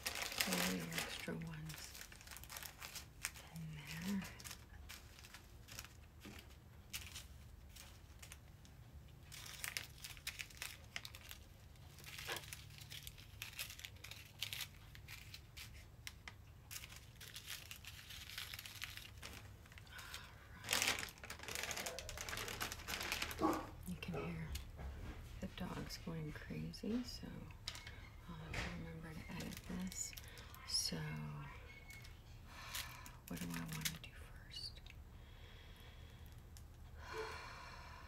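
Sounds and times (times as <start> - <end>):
plastic crinkling: 0.0 - 24.7, 26.8 - 34.4.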